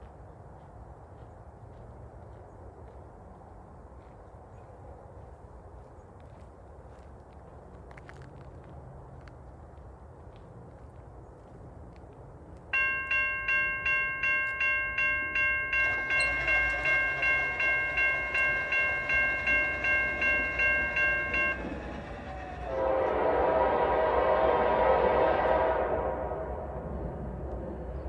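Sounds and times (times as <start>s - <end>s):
railroad crossing bell ringing: 12.7s - 23.3s
locomotive air horn chord: 15.8s - 26.8s.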